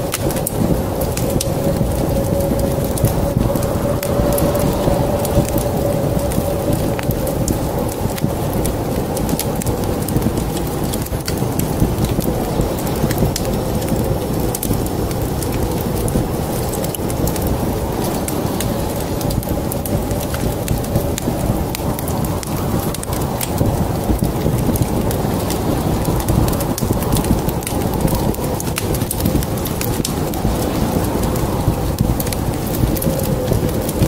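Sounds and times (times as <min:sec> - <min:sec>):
deep rumbling noise: 0:00.0 - 0:34.0
wood fire crackling: 0:00.0 - 0:34.0.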